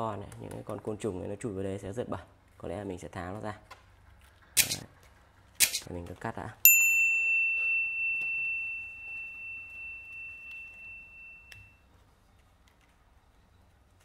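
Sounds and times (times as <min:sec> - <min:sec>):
small metal object ringing: 0:06.7 - 0:11.8.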